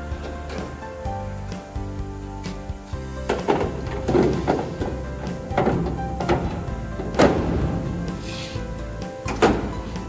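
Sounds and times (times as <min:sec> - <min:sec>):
metal panel clunk: 0:00.0 - 0:01.7, 0:03.1 - 0:10.0
background music: 0:00.0 - 0:10.0.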